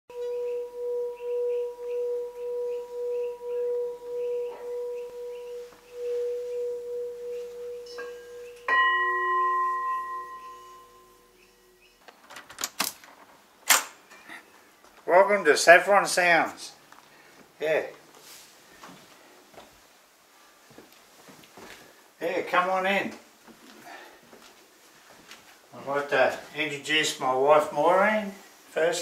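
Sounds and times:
metal bowl struck ringing higher: 0.1s - 11.6s
singing bowl ringing low: 0.1s - 11.9s.

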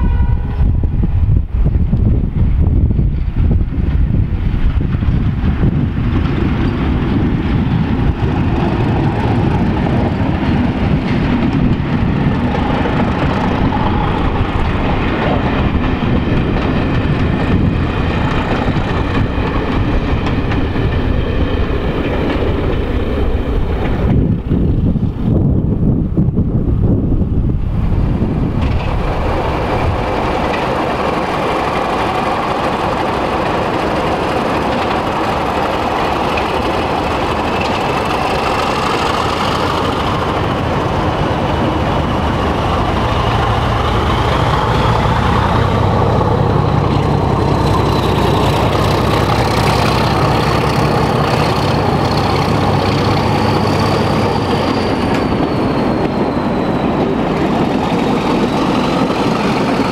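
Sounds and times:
diesel locomotive engine: 0.0s - 59.9s.

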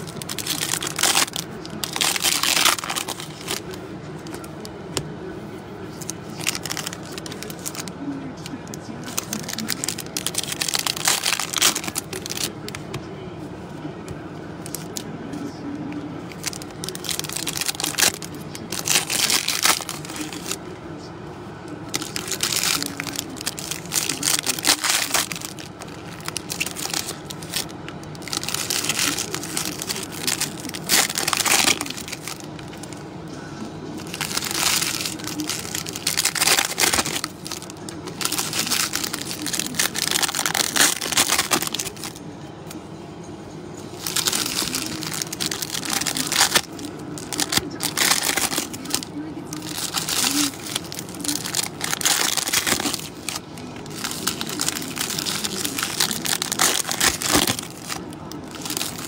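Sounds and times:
foil wrappers crinkling and tearing: 0.0s - 4.7s, 6.0s - 12.9s, 14.6s - 15.1s, 16.3s - 20.6s, 21.9s - 33.0s, 33.9s - 42.2s, 43.9s - 59.0s
cards being shuffled: 44.0s - 59.0s.

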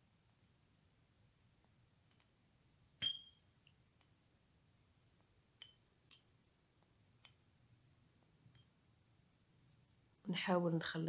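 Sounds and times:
plastic spoon clicking on glass bowls: 3.0s - 3.3s, 5.6s - 6.3s, 7.2s - 7.4s.

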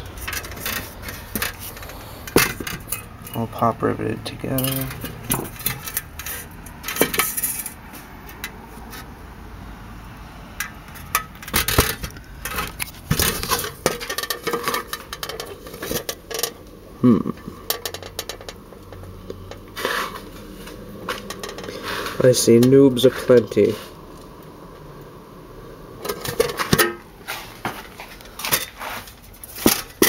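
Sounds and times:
metal helmet clinking and rattling: 0.0s - 3.6s, 4.5s - 8.6s, 10.6s - 16.7s, 17.4s - 20.4s, 21.0s - 21.9s, 26.0s - 30.0s.

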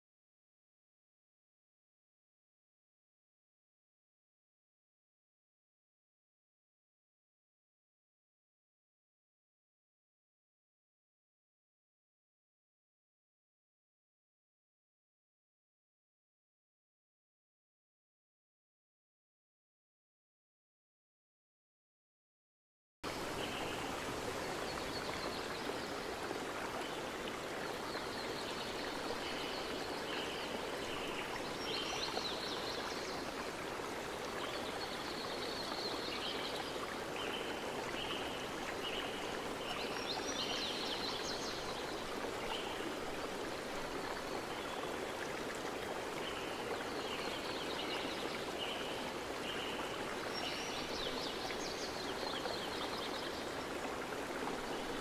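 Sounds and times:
running water: 23.0s - 55.0s.

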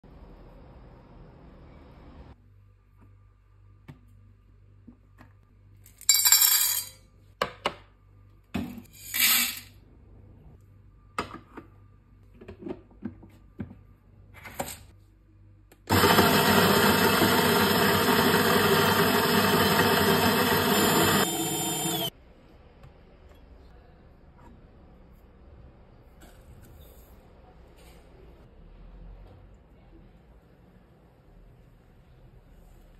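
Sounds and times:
coffee grinder running: 15.9s - 22.1s.

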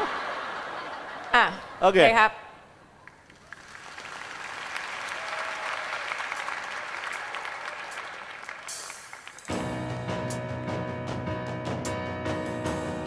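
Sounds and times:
studio audience applauding: 3.0s - 9.6s.

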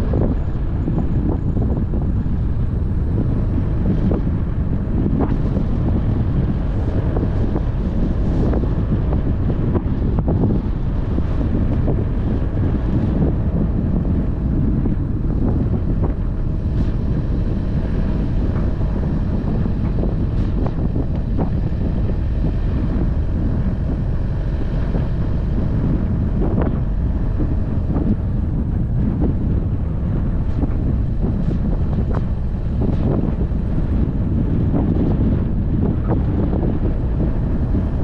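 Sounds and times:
wind buffeting microphone: 0.0s - 38.0s.

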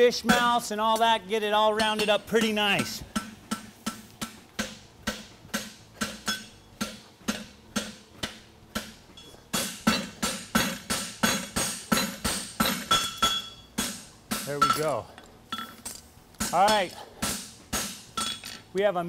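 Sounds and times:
hammer striking steel on anvil: 0.2s - 15.8s, 16.4s - 18.5s.

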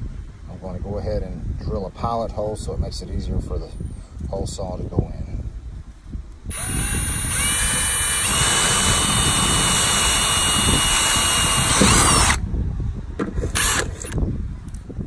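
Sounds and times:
cordless drill drilling into metal: 6.5s - 12.4s, 13.5s - 14.2s.

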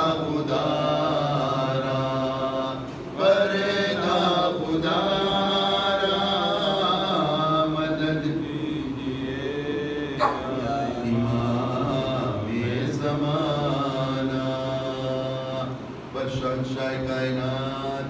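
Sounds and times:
man chanting unaccompanied: 0.0s - 18.0s.

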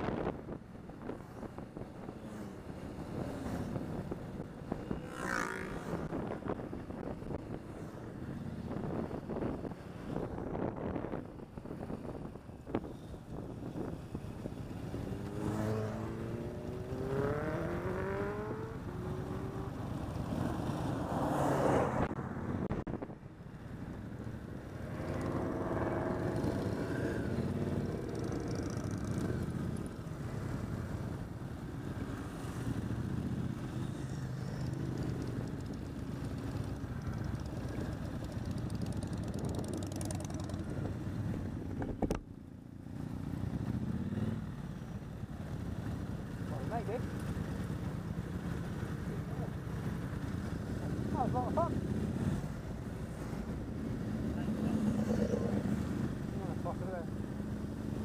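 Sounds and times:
motorcycle engine accelerating: 14.9s - 20.9s, 24.8s - 30.0s, 34.6s - 42.2s.

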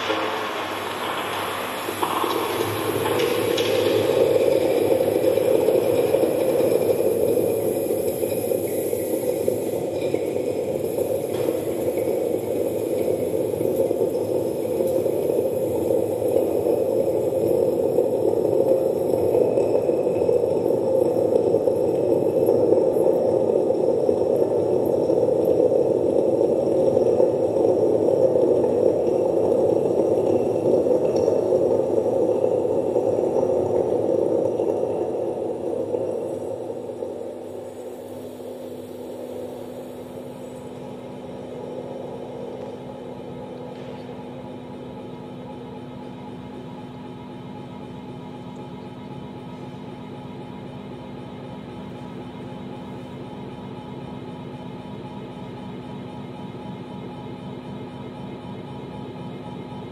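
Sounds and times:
grainy electronic drone: 0.0s - 46.6s.

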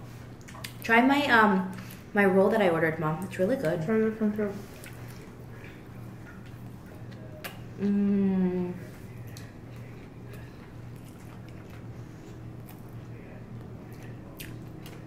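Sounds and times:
steady low hum: 0.0s - 15.0s
person chewing: 0.4s - 0.8s, 4.7s - 8.2s, 8.8s - 15.0s
person humming mmm: 7.7s - 8.9s.

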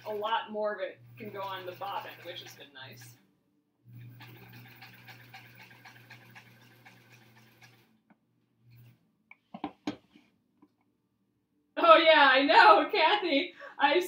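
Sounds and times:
sewing machine running: 0.0s - 0.4s, 1.0s - 3.2s, 3.9s - 7.9s.

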